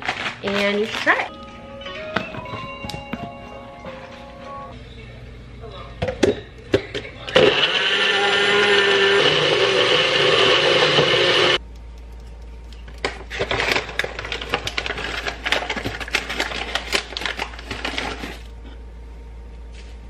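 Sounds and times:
snack packet crackling: 0:00.0 - 0:01.3, 0:12.0 - 0:18.5
blender blending: 0:07.3 - 0:11.6.

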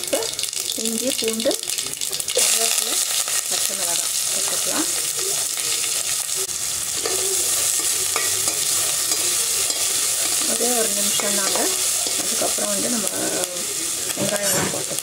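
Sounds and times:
food sizzling in hot oil: 0:00.0 - 0:15.0
ladle stirring in pot: 0:06.9 - 0:15.0.

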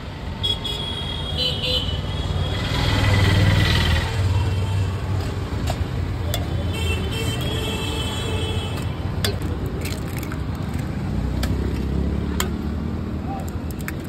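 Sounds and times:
low street rumble: 0:02.1 - 0:14.0
eggshells cracking on steel mug: 0:08.8 - 0:12.7, 0:13.5 - 0:14.0.

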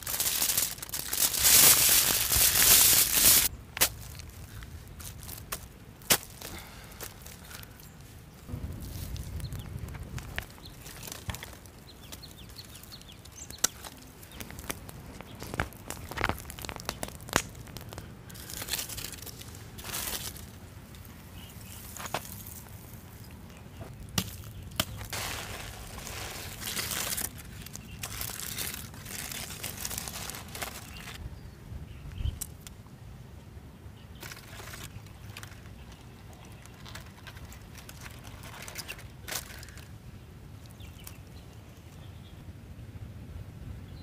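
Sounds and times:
aluminium foil crinkling: 0:00.0 - 0:08.1, 0:08.8 - 0:23.4, 0:24.0 - 0:31.2, 0:34.2 - 0:39.9
stick knocking charred wood: 0:13.5 - 0:18.1.

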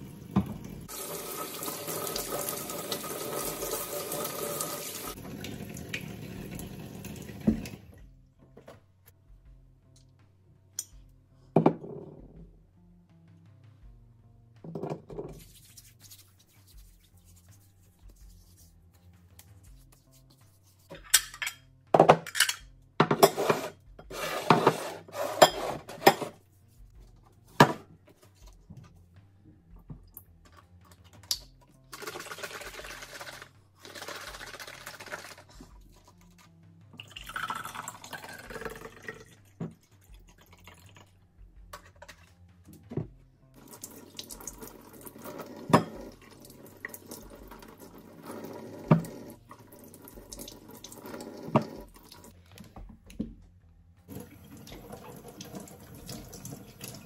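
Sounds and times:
tap running into sink: 0:04.9 - 0:07.8
liquid poured into a glass: 0:37.0 - 0:41.1.

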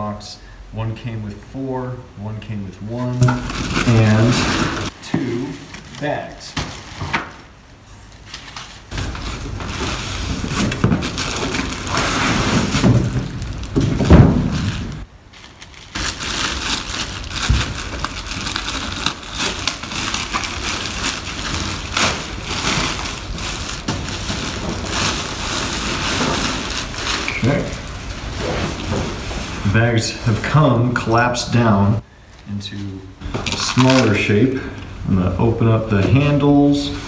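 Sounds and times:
plastic wrapping crinkling: 0:03.2 - 0:30.5, 0:33.2 - 0:34.8.

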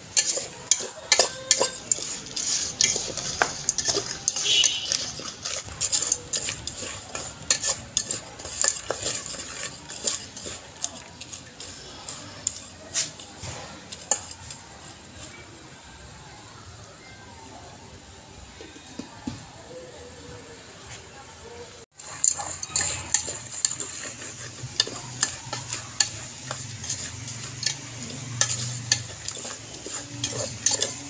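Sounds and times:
metal spoon scraping a pot: 0:00.0 - 0:15.4, 0:22.0 - 0:31.0.

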